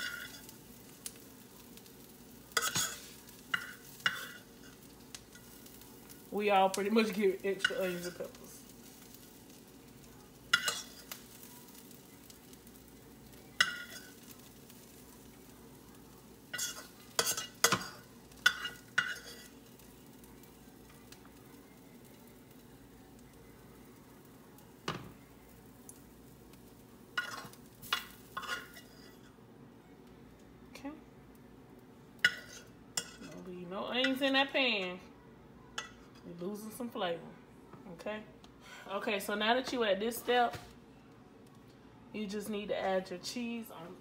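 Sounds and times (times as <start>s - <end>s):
faint sizzle: 0.0s - 44.0s
metal spoon scraping frying pan: 2.5s - 5.5s, 10.5s - 11.2s, 16.5s - 19.6s, 27.2s - 29.3s, 32.2s - 33.4s.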